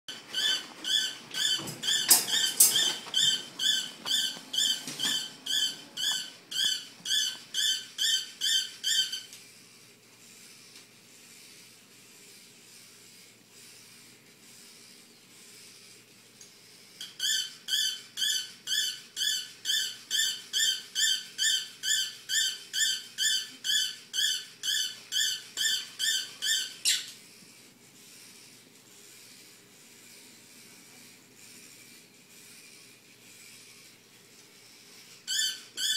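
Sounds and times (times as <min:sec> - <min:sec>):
toy robot dog squeaks: 0:00.3 - 0:09.3, 0:17.0 - 0:27.2, 0:35.3 - 0:35.9.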